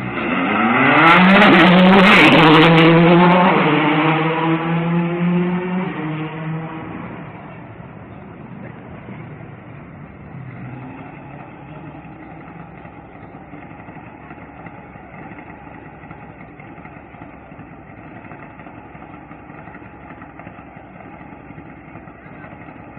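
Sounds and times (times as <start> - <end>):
engine idling: 7.1 - 22.9.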